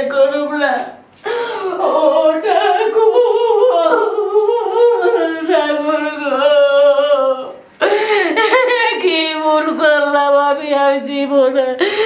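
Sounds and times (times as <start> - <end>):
woman's high wordless voice: 0.0 - 1.0.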